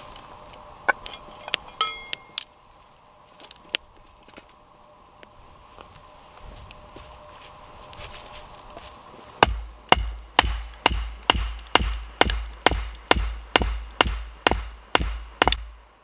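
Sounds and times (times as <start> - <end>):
baton knocking hatchet: 9.4 - 15.8.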